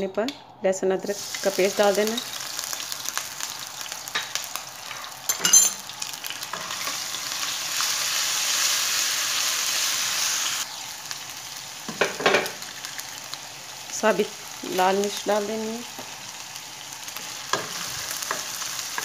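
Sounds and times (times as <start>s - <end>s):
paste sizzling in hot oil: 1.1s - 19.0s.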